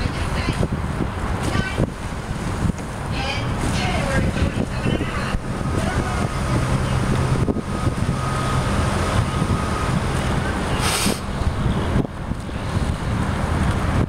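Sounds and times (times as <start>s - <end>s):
wind buffeting microphone: 0.0s - 14.0s
brief hiss: 10.8s - 11.3s.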